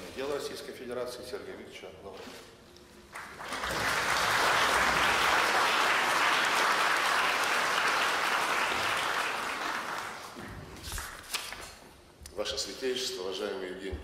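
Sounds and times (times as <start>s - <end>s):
audience applauding: 3.1s - 11.1s.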